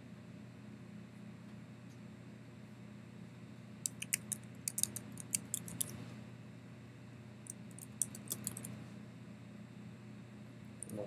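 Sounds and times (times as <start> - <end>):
low steady hum: 0.0 - 11.0
keyboard typing: 3.9 - 6.0, 7.5 - 8.7.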